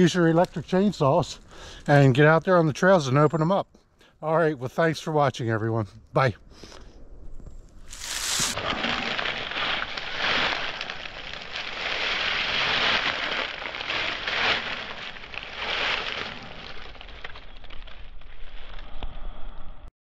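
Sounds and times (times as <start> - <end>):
dry leaves rustling: 7.9 - 18.8.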